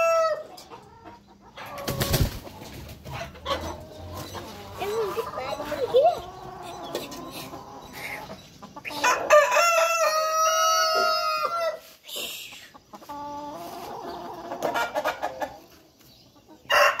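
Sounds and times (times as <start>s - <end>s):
rooster crowing: 0.0s - 0.4s, 8.9s - 11.8s, 16.7s - 17.0s
chickens clucking: 0.0s - 17.0s.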